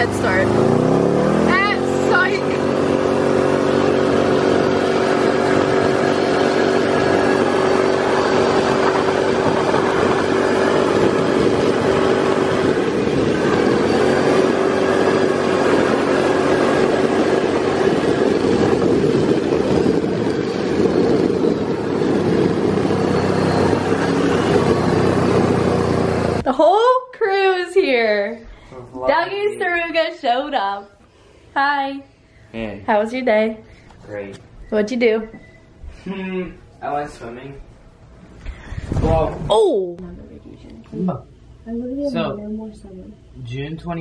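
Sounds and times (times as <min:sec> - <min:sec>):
utility vehicle engine running: 0:00.0 - 0:26.5.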